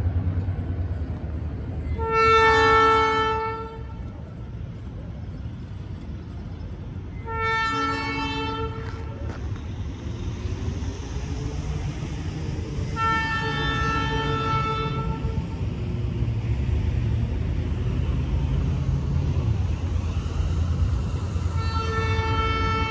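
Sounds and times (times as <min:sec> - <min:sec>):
locomotive air horn blasts: 0:02.0 - 0:04.0, 0:07.2 - 0:09.2, 0:13.0 - 0:15.5, 0:21.5 - 0:22.9.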